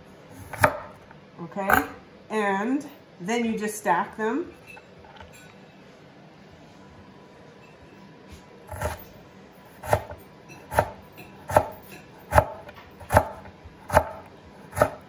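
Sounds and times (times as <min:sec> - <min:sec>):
knife chopping on wooden board: 0:00.4 - 0:01.0, 0:08.7 - 0:09.0, 0:09.8 - 0:15.0.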